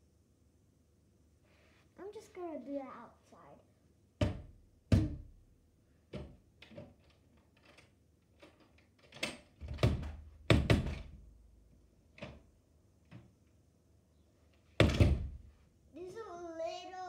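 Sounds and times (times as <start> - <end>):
sliding door knocks and thumps: 4.2 - 5.4, 9.2 - 11.3, 14.7 - 15.5.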